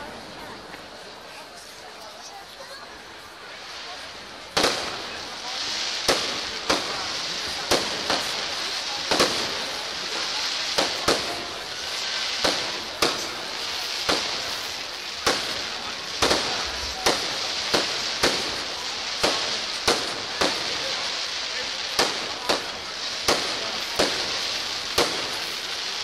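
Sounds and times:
steady high hiss: 0:00.2 - 0:26.0
firework shells bursting: 0:10.7 - 0:20.8.

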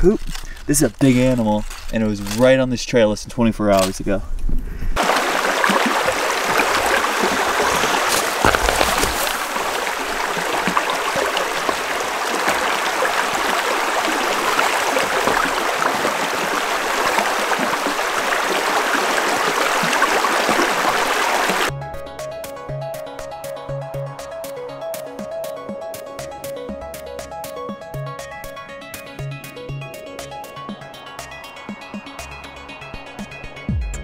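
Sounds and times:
creek babbling over stones: 0:05.0 - 0:21.7.

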